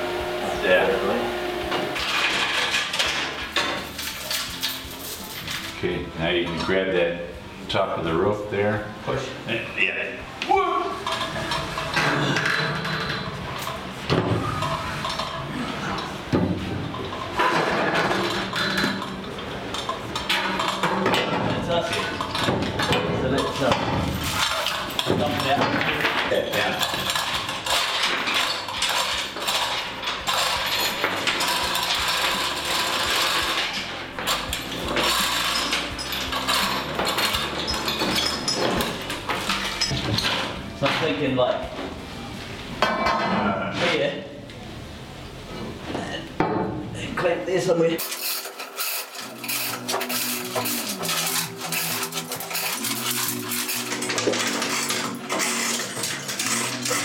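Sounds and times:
chain clinking: 0:02.2 - 0:05.8, 0:24.0 - 0:33.7, 0:34.3 - 0:40.3, 0:48.0 - 0:57.0.

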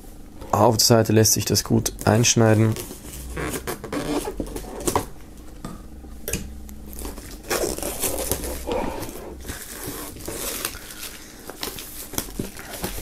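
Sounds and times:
plastic film tearing and crinkling: 0:06.9 - 0:13.0.

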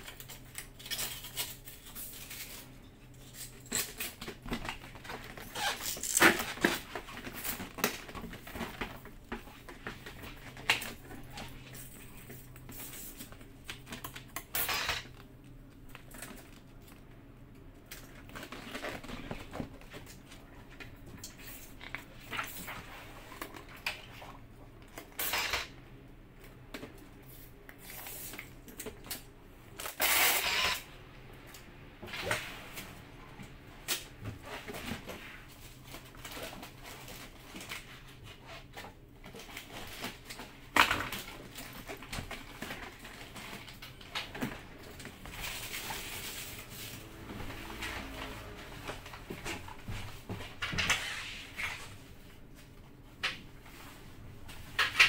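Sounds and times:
rustling or scraping: 0:34.0 - 0:55.0.

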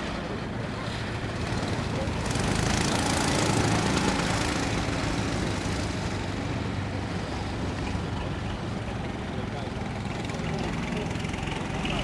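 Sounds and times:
go-kart engines running: 0:00.0 - 0:12.0.

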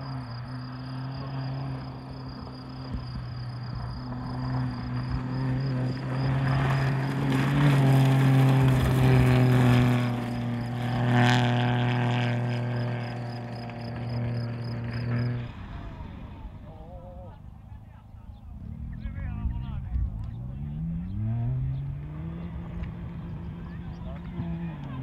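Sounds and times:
insects chirping: 0:00.0 - 0:07.9, 0:12.4 - 0:15.5
rally car engine running hard: 0:00.0 - 0:25.0.

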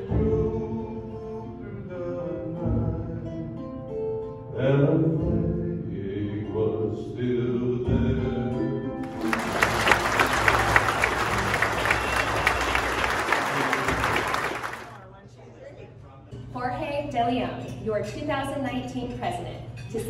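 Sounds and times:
audience applause: 0:09.0 - 0:15.0.

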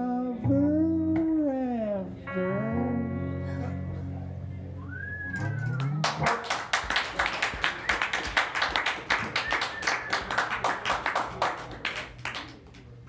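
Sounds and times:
small audience clapping: 0:05.4 - 0:13.0.

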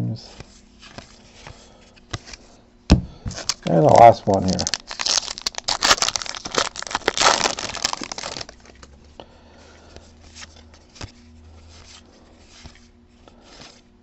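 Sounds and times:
low steady hum: 0:00.0 - 0:14.0
plastic wrapper tearing and crinkling: 0:03.3 - 0:08.9.

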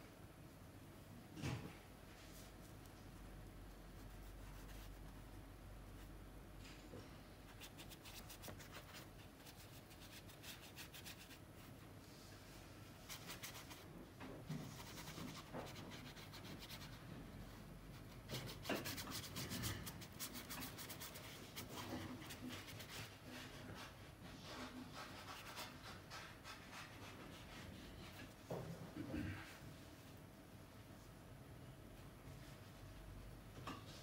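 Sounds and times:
paintbrush scratching on paper: 0:04.0 - 0:05.3, 0:07.5 - 0:11.7, 0:13.0 - 0:13.9, 0:14.6 - 0:17.0, 0:17.9 - 0:28.2.

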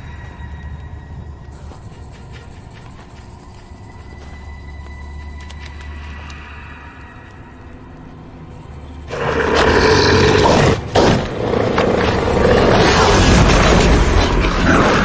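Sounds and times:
monster dog roaring and snarling: 0:09.1 - 0:15.0.

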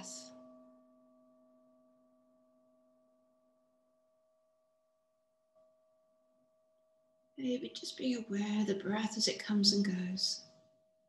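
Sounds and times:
meditation bell ringing: 0:00.0 - 0:07.4.

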